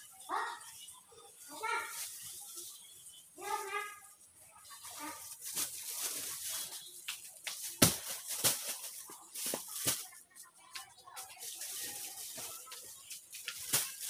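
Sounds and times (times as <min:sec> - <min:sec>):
crinkling plastic: 0:00.1 - 0:14.0
sharp knocks of packs set down: 0:07.5 - 0:08.8.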